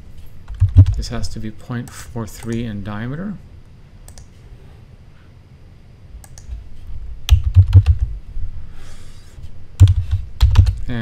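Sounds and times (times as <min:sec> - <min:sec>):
typing on computer keyboard: 0:00.5 - 0:01.0, 0:07.3 - 0:08.1, 0:09.8 - 0:10.8.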